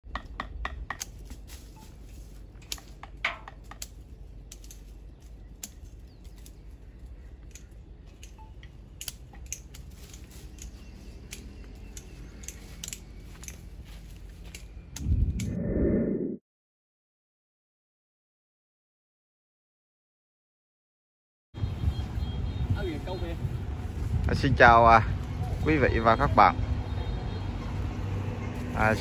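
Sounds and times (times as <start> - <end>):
pruning shears snipping: 0.2 - 6.7, 7.4 - 15.1
faint low rumble: 14.9 - 16.4.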